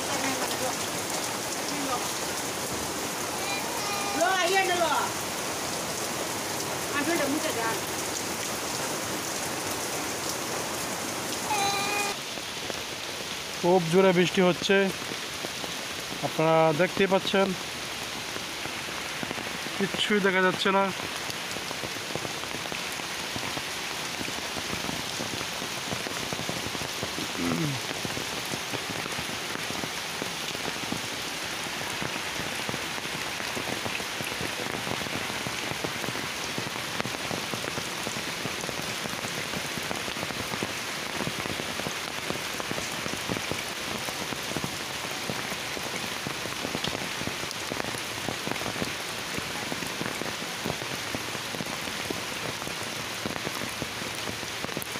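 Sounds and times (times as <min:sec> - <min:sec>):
heavy rain on foliage: 0:00.0 - 0:54.9
raindrops striking an umbrella: 0:00.0 - 0:54.9.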